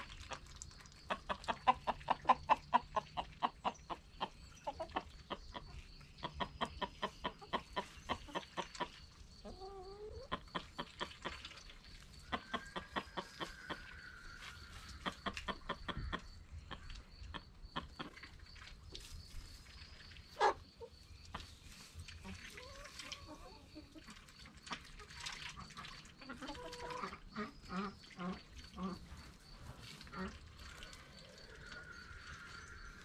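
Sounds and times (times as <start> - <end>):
hens clucking: 0.2 - 33.0.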